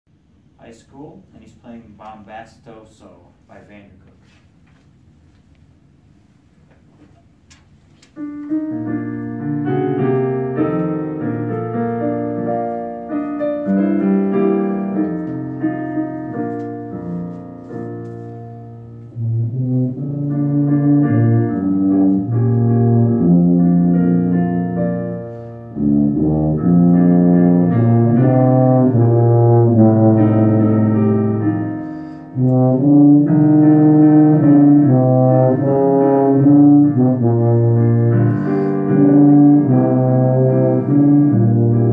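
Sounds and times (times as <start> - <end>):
tuba solo: 19.0 - 41.9.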